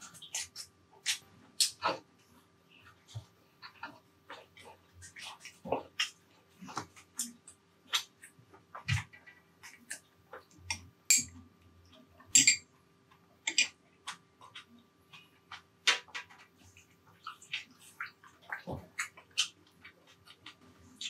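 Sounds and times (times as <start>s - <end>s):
faint steady hum: 0.0s - 21.0s
wet chewing mouth clicks: 16.7s - 21.0s.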